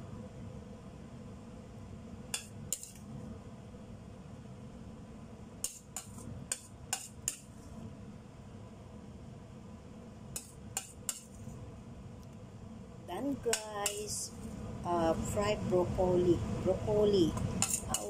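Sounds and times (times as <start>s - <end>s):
low steady hum: 0.0s - 18.0s
spatula scraping metal wok: 17.6s - 18.0s.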